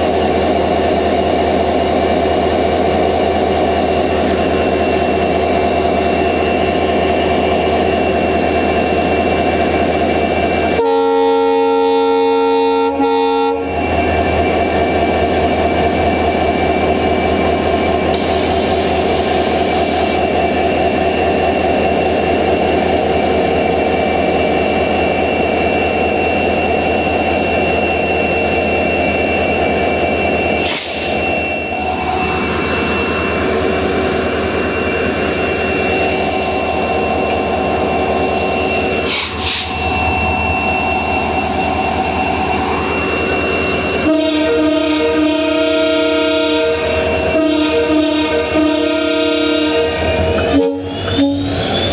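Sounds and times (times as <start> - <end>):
diesel locomotive engine running: 0.0 - 51.9
locomotive horn chord: 10.8 - 13.7, 44.0 - 51.5.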